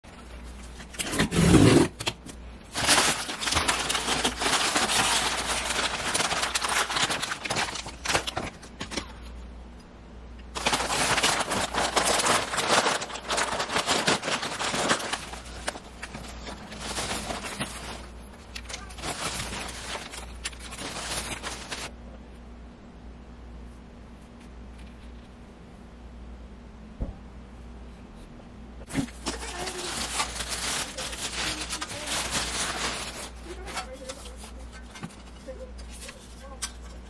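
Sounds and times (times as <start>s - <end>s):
paper and bubble wrap crinkling: 0.1s - 9.4s, 10.5s - 22.0s, 28.9s - 37.0s.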